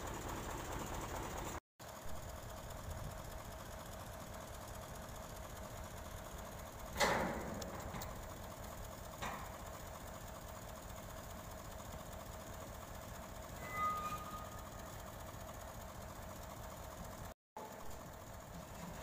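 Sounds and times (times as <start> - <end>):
truck engine running: 0.0 - 19.0
metallic clank: 6.9 - 8.3, 9.2 - 9.7, 13.6 - 14.8
short high squeal: 13.6 - 14.9.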